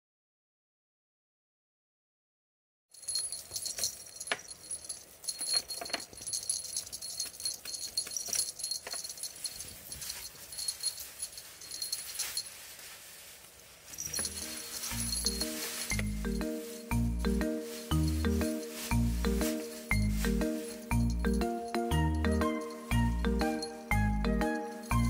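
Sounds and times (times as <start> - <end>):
collar bell jingling: 3.0 - 12.7, 13.9 - 25.0
paws and toy scuffling: 3.0 - 25.0
background music: 14.2 - 25.0.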